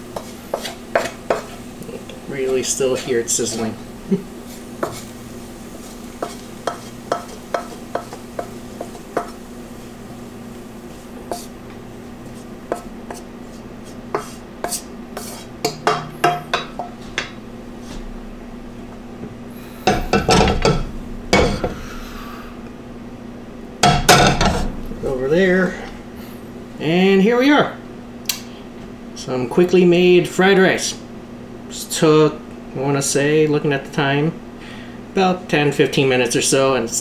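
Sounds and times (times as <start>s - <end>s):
spatula scraping a wok: 0.0s - 11.6s, 12.2s - 16.0s, 24.2s - 24.8s
spatula tapping a wok: 0.1s - 1.5s, 6.2s - 9.4s, 11.2s - 11.5s, 12.6s - 13.3s, 14.1s - 17.4s.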